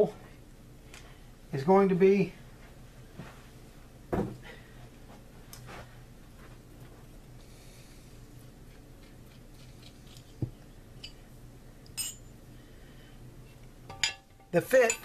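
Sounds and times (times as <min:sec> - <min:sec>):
steady low hum: 0:00.0 - 0:15.0
soft thump: 0:04.1 - 0:04.4
short metallic clink: 0:12.0 - 0:12.3.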